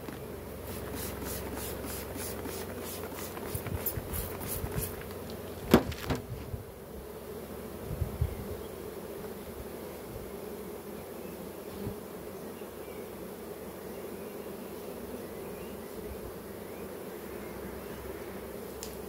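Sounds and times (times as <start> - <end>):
honeybees buzzing: 0.0 - 19.0
soft thumps: 5.6 - 6.5.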